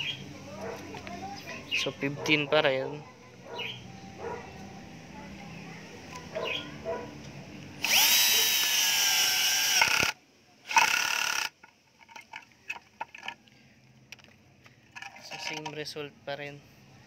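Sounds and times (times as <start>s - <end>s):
cordless drill motor whining: 7.8s - 11.6s.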